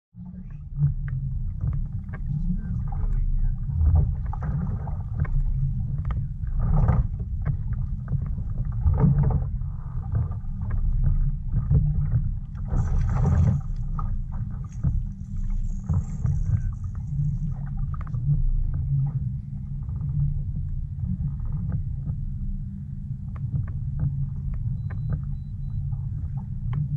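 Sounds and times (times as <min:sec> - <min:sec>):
wind rumble on microphone: 0:00.2 - 0:26.9
water splashes: 0:00.5 - 0:20.2.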